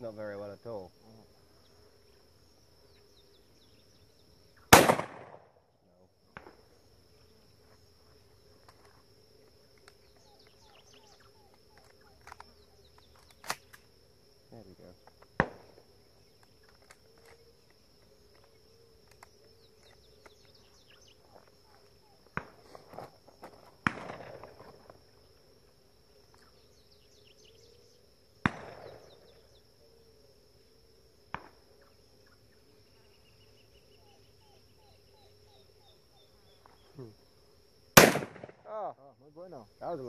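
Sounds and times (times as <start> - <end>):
insects buzzing: 0.0 - 40.0
shotgun shots: 4.7 - 5.5, 23.8 - 24.6, 28.4 - 29.1, 38.0 - 38.7.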